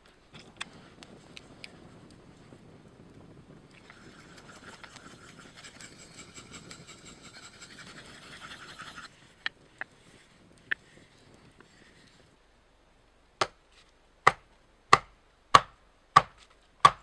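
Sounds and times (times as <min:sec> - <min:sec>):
knife scraping on whetstone: 0:03.9 - 0:09.1.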